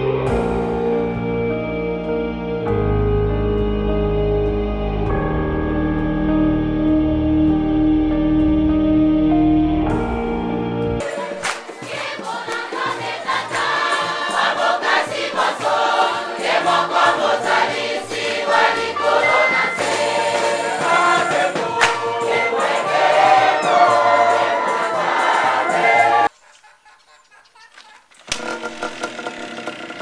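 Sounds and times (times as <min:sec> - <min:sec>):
congregation singing: 0:11.0 - 0:26.3
sharp percussive strikes: 0:17.5 - 0:25.7.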